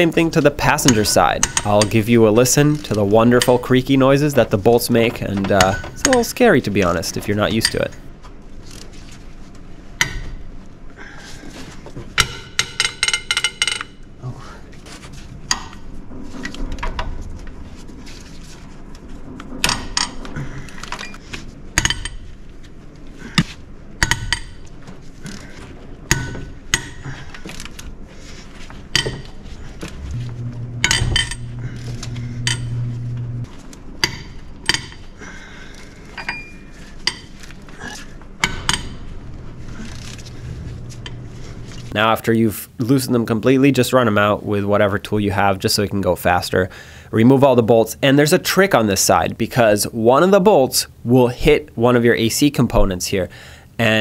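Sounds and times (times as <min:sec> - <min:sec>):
low groan: 0:29.6 - 0:33.5, 0:37.7 - 0:42.0.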